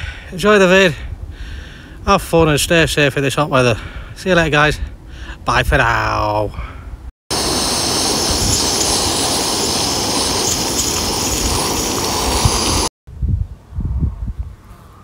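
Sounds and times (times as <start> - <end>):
gas stove burner hissing: 7.3 - 12.9.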